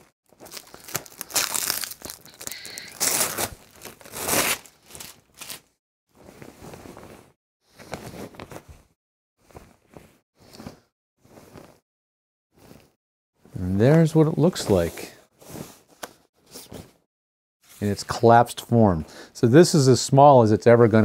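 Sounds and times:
fabric wrap rustling: 0:00.0 - 0:11.8, 0:12.6 - 0:13.0.

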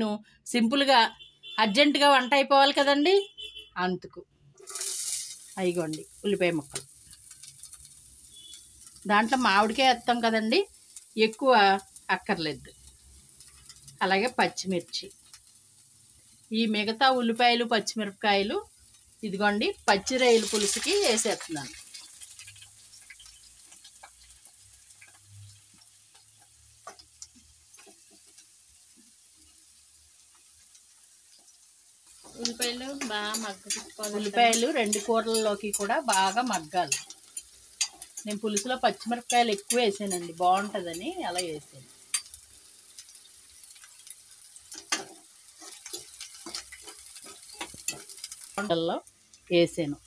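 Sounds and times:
steel spoon scraping a pan: 0:04.6 - 0:09.9, 0:32.1 - 0:48.7
small pops and crackles: 0:04.6 - 0:12.1, 0:20.5 - 0:49.5
food sizzling in oil: 0:04.6 - 0:50.0.

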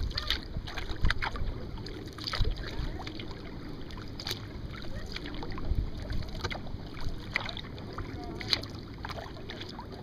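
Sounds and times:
wind noise on microphone: 0:00.0 - 0:01.7
paddle splashing water: 0:00.0 - 0:10.0.

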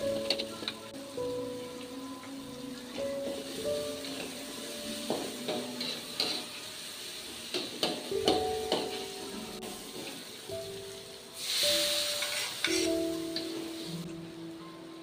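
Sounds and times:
faint sizzle: 0:00.0 - 0:15.0
metal spatula scraping wok: 0:04.0 - 0:10.4, 0:11.5 - 0:13.6.

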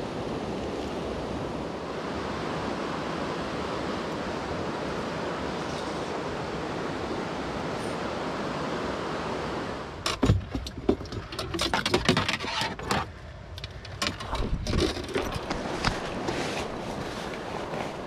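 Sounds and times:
stream rushing: 0:00.0 - 0:18.0
gear knocking and rustling: 0:10.1 - 0:16.4.

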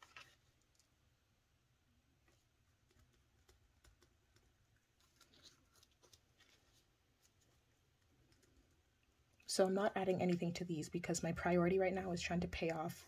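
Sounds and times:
banknotes rustling in plastic: 0:04.8 - 0:08.6.

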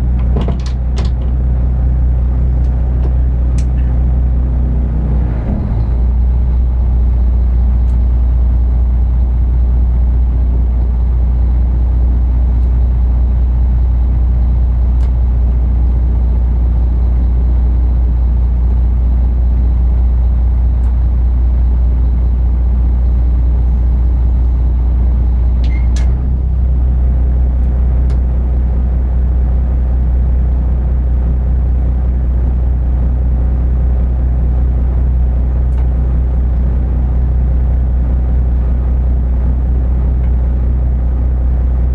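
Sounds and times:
diesel engine rumbling: 0:00.0 - 0:41.9.

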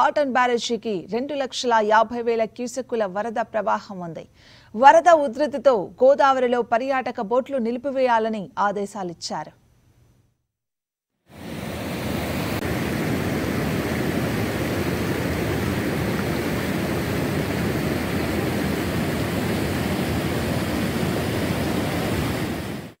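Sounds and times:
floodwater rushing: 0:11.4 - 0:23.0.

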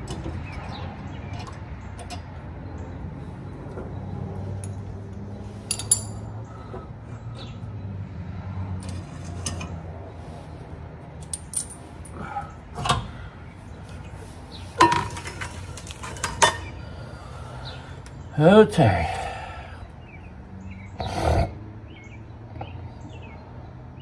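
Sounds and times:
hand tools clinking on metal: 0:05.6 - 0:06.4, 0:11.2 - 0:12.2
sharp metal clanks: 0:05.7 - 0:06.3.

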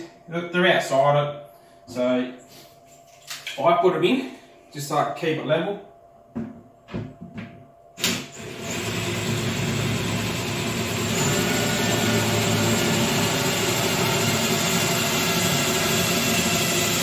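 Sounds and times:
cordless drill running: 0:08.0 - 0:17.0.

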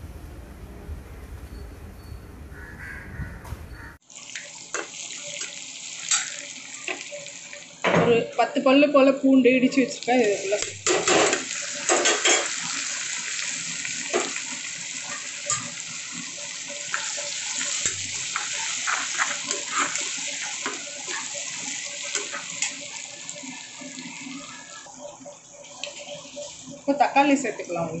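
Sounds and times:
onions sizzling in oil: 0:04.0 - 0:28.0
spatula scraping pan: 0:16.8 - 0:23.0.

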